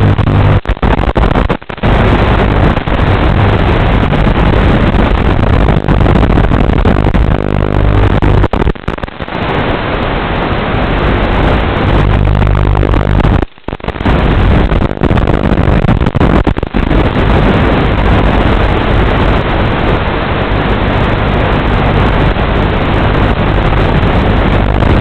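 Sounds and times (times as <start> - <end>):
low buzz: 0.0 - 8.8, 11.3 - 13.5, 14.1 - 18.5
loud hissing static: 0.0 - 25.0.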